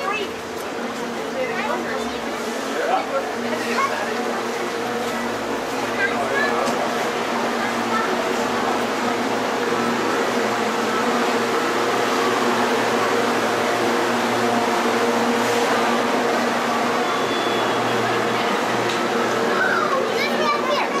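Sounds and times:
machine hum with rushing air: 0:02.1 - 0:20.2.

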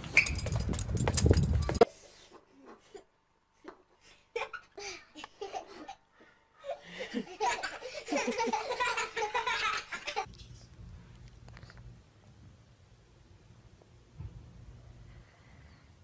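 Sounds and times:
people laughing: 0:06.8 - 0:10.3.

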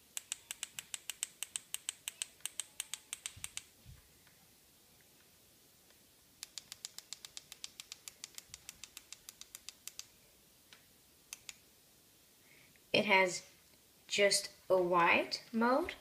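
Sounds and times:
remote push buttons clicking: 0:00.1 - 0:03.7, 0:11.3 - 0:11.6.

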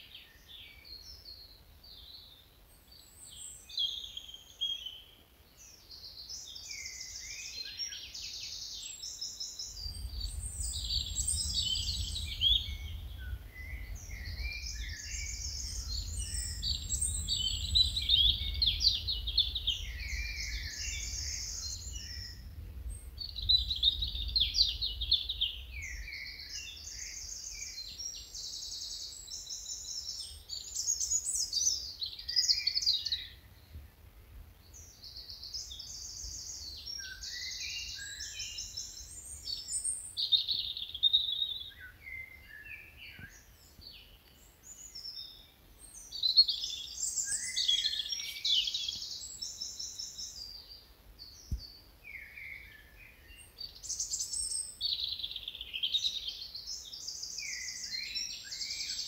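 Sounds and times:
songbirds trilling: 0:05.7 - 0:33.8.

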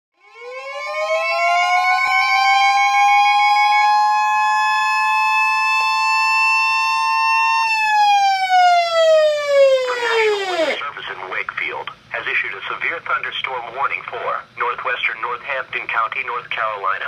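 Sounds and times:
electronic siren wailing: 0:00.2 - 0:10.8
high warning alarm tone: 0:00.2 - 0:10.8.

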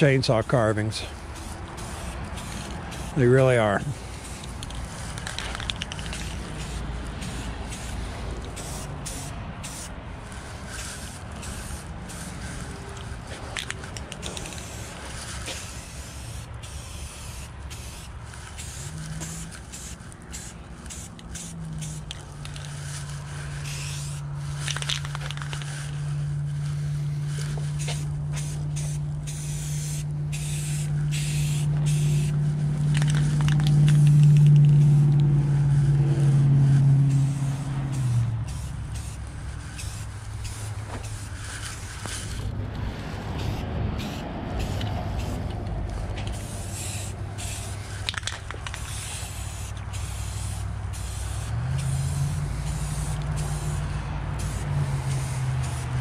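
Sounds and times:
spray paint can hissing: 0:00.0 - 0:56.0
low motor drone: 0:30.0 - 0:47.8.

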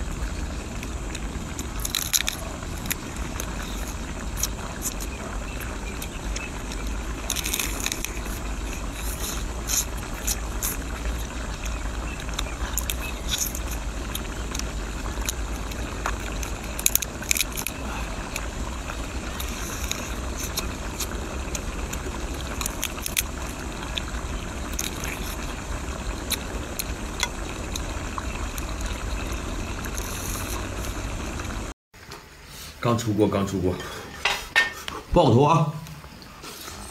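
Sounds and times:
low rumble: 0:00.0 - 0:31.8
crab shell cracking and crunching: 0:00.8 - 0:29.2.

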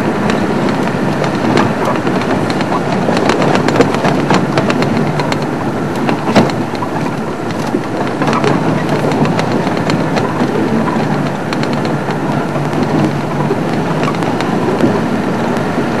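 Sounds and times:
vehicle engine drone: 0:00.0 - 0:16.0
vehicle rattling over bumps: 0:00.0 - 0:16.0.

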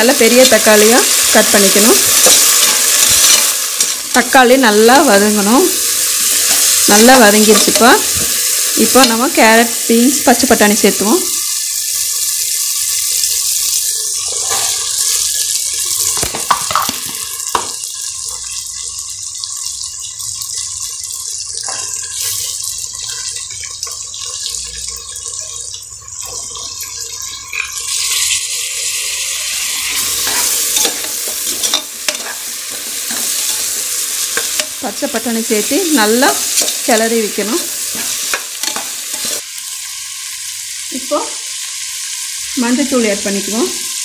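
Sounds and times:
vegetables sizzling in hot oil: 0:00.0 - 0:44.0
ladle stirring vegetables: 0:00.2 - 0:04.4, 0:05.8 - 0:09.2, 0:29.8 - 0:39.4.

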